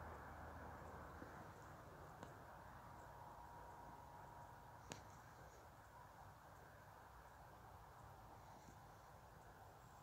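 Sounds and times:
faint outdoor hiss: 0.0s - 10.0s
faint click: 4.8s - 5.4s.

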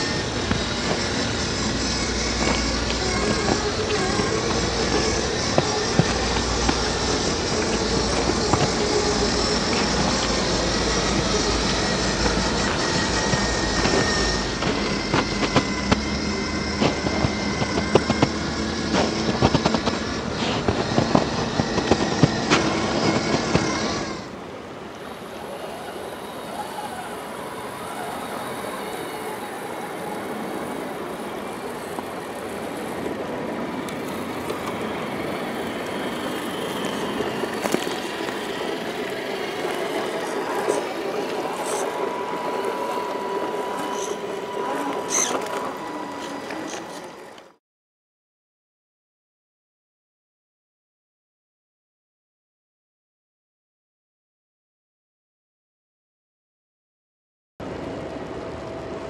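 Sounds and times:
creek flowing: 0.0s - 23.4s, 24.3s - 47.5s
toy car motor and gears whining: 0.0s - 47.6s
tyres crackling on snow and ice: 0.0s - 47.6s.

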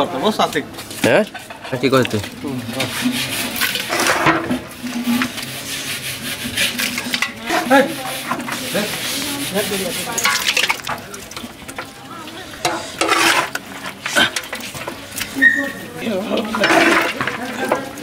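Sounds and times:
plate scraping metal pot: 2.6s - 11.0s, 12.5s - 18.0s.

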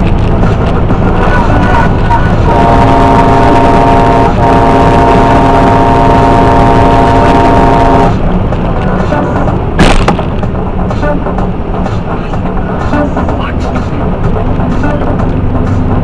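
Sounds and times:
truck engine and tyres droning: 0.0s - 16.0s
truck air horn blast: 2.1s - 8.3s
sharp knock: 9.8s - 10.5s.

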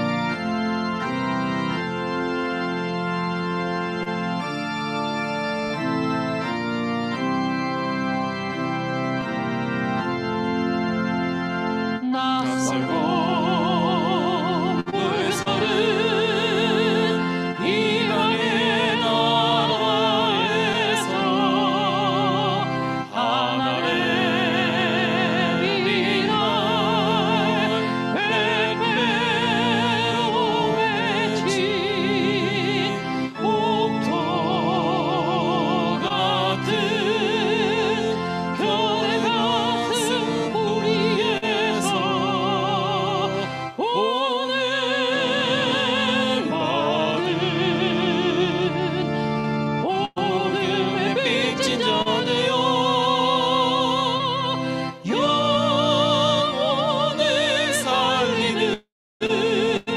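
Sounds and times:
instrumental accompaniment: 0.0s - 59.9s
woman singing with vibrato: 12.0s - 22.6s, 43.8s - 48.1s.

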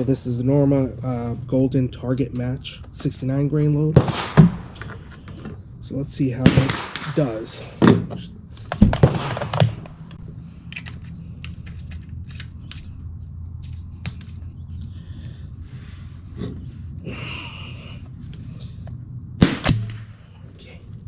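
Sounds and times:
high insect drone: 0.0s - 21.0s
gunshot: 4.0s - 4.8s, 6.4s - 8.0s, 8.8s - 9.8s, 19.4s - 20.2s.

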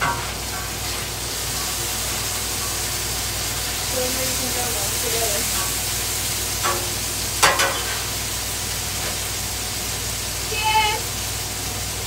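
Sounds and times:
spatula clinking on griddle: 0.0s - 8.2s
burgers sizzling on griddle: 0.0s - 12.0s.

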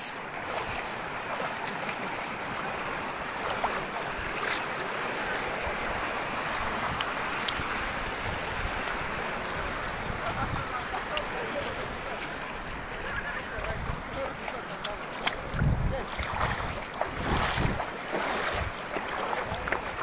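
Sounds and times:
wind on microphone: 15.4s - 20.0s.

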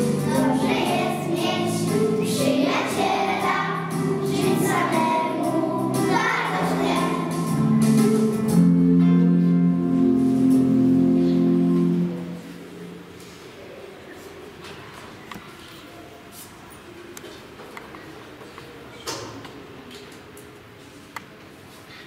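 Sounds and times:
young children singing: 0.0s - 8.7s.

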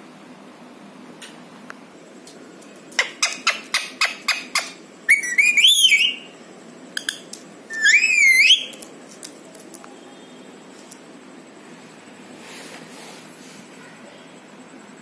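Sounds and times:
parakeet whistling: 3.0s - 6.3s, 7.0s - 8.8s.

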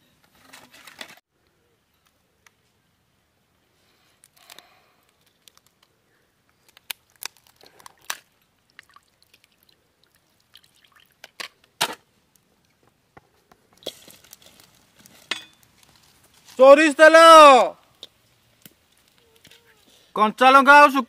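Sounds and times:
crab shells cracking: 6.6s - 8.9s.

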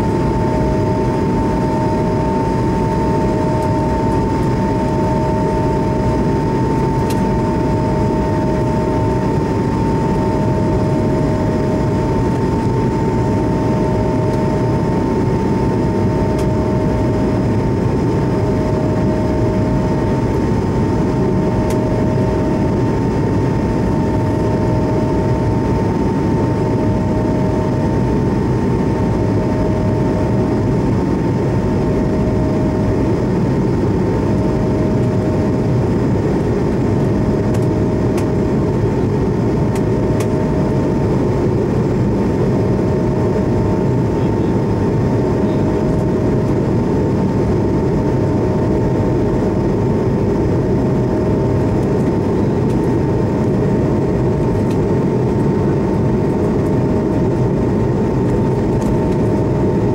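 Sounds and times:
low pulsing tone: 0.0s - 28.2s
jet engine and airflow rush: 0.0s - 59.9s
steady whine: 0.0s - 59.9s.

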